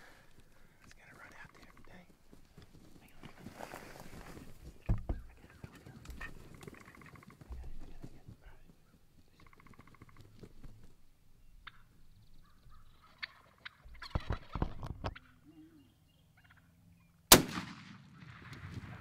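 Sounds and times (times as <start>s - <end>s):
turkeys gobbling: 1.5s - 2.0s, 5.4s - 7.5s, 9.4s - 10.3s, 11.6s - 16.7s
gunshot: 17.3s - 19.0s.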